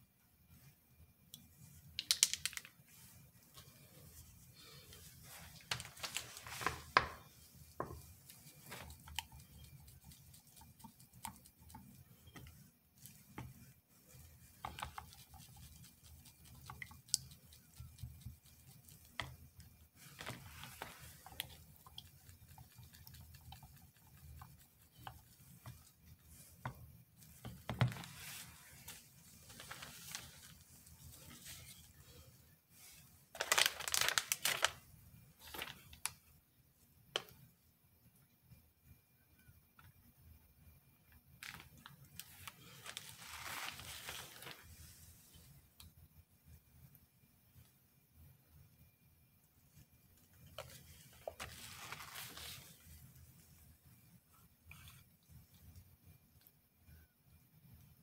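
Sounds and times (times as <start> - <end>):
paper rustling: 4.9 - 7.3, 27.7 - 31.8, 33.4 - 34.8, 35.4 - 36.0, 41.4 - 45.0, 50.6 - 52.8.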